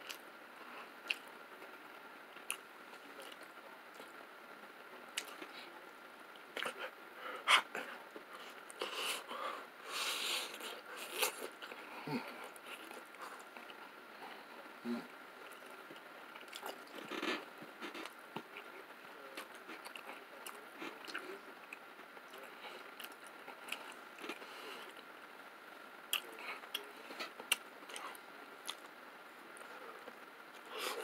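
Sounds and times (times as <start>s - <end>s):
person chewing pizza: 1.0s - 1.3s, 5.2s - 5.6s, 6.4s - 18.7s, 19.3s - 25.1s.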